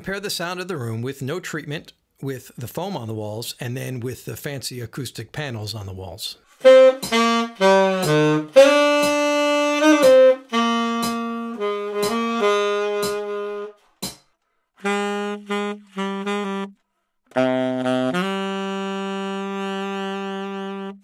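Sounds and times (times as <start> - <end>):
tenor saxophone jazz phrase: 6.6 - 13.8, 14.8 - 21.0.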